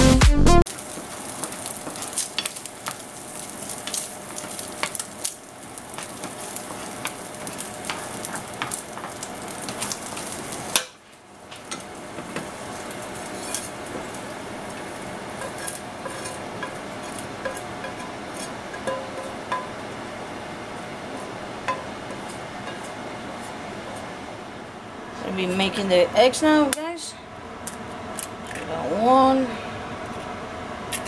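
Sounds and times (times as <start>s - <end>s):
bacon sizzling in a frying pan: 0.7s - 24.0s.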